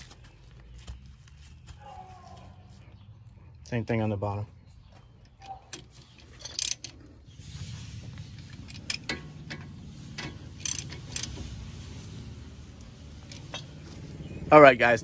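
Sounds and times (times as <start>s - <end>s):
ratchet working on bolts: 5.8s - 7.0s, 8.6s - 11.6s, 13.1s - 13.8s
sharp metallic clicks: 8.6s - 11.5s.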